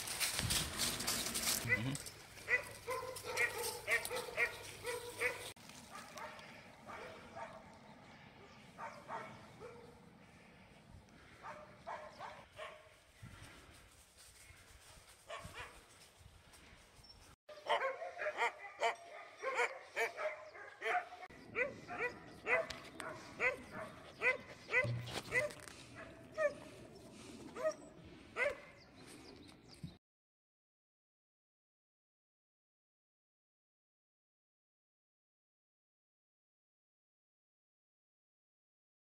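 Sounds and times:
puppies barking and yipping: 0.0s - 12.8s, 17.5s - 28.8s.

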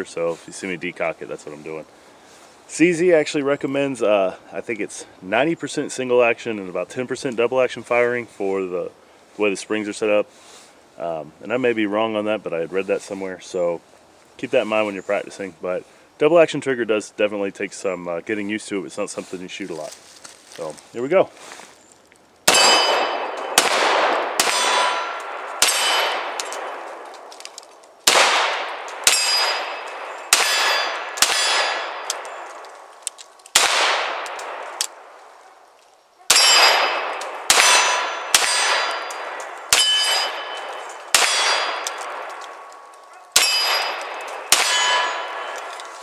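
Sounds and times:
pistol shots: 22.5s - 27.0s, 28.0s - 32.8s, 33.5s - 34.9s, 36.3s - 42.7s, 43.3s - 45.9s
metallic ringing: 29.0s - 32.5s, 36.3s - 42.0s, 43.4s - 45.8s.

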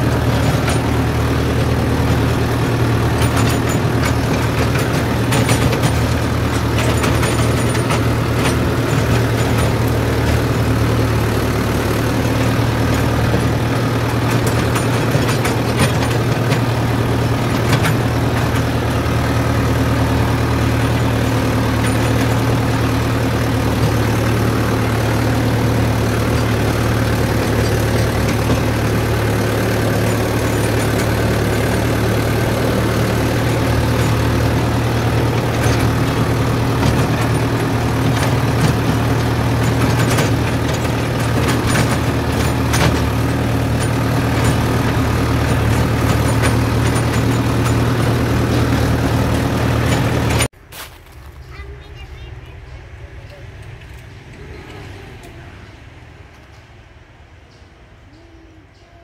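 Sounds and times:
tractor diesel engine running: 0.0s - 58.8s.

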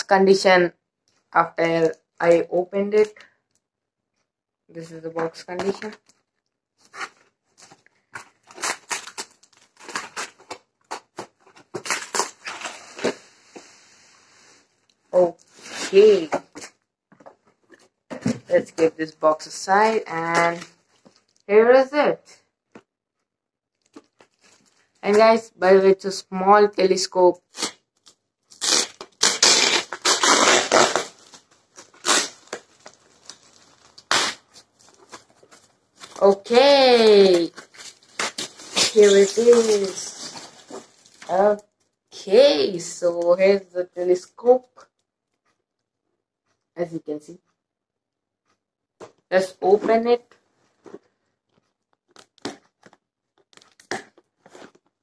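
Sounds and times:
foam wrap crinkling and tearing: 6.8s - 13.2s, 19.8s - 21.4s, 23.7s - 25.2s, 27.5s - 41.9s, 51.5s - 55.0s.

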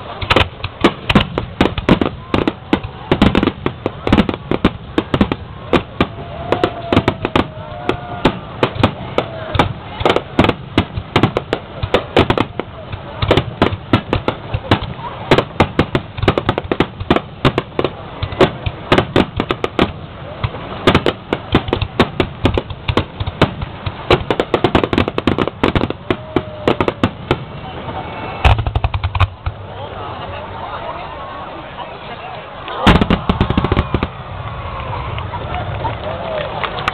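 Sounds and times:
fireworks bursting: 0.0s - 30.1s, 32.6s - 36.9s.

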